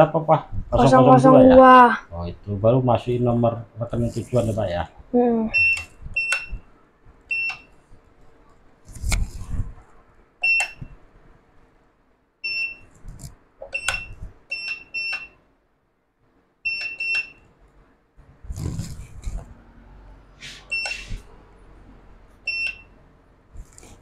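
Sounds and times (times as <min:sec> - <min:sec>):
keypad beeps: 0:05.5 - 0:06.6, 0:07.3 - 0:07.7, 0:10.4 - 0:10.9, 0:12.4 - 0:12.9, 0:13.7 - 0:15.4, 0:16.7 - 0:17.4, 0:20.7 - 0:21.1, 0:22.5 - 0:22.9.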